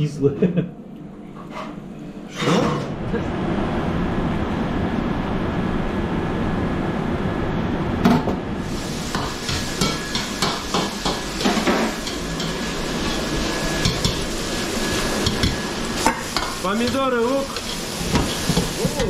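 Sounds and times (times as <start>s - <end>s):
cooking utensils knocking: 9.2s - 12.6s.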